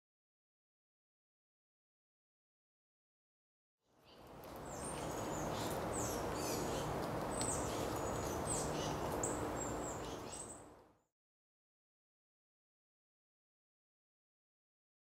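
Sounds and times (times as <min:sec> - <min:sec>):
steady background hiss: 0:04.0 - 0:11.0
birds chirping: 0:04.1 - 0:10.8.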